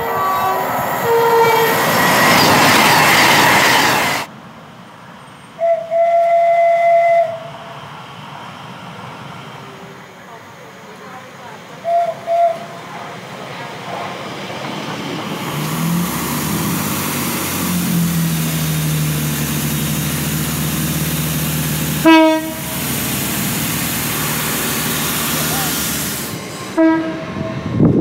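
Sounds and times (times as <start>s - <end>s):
electric train horn toots: 0.0s - 1.9s, 5.6s - 7.5s, 22.0s - 22.9s, 26.7s - 27.6s
loud train horn blast: 0.0s - 1.9s, 22.0s - 22.9s, 26.7s - 27.6s
diesel train engine humming: 0.0s - 28.0s
train wheel and rail noise: 0.0s - 28.0s.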